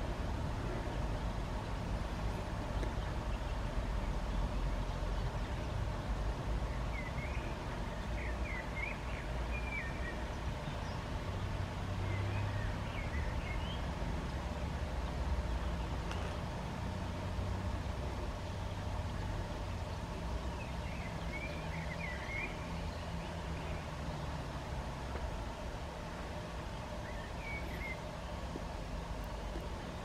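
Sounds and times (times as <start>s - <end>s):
low outdoor rumble: 0.0s - 30.0s
small bird chirping: 27.0s - 28.1s.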